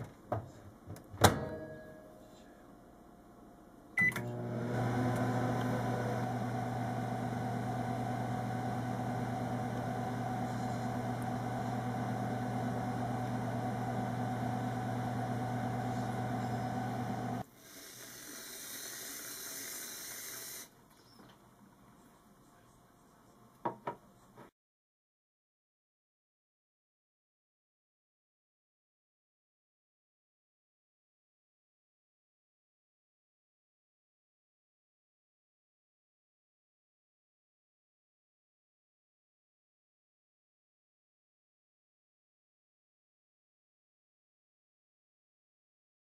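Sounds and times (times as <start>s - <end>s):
microwave oven humming: 4.0s - 17.4s
high hiss: 17.5s - 20.7s.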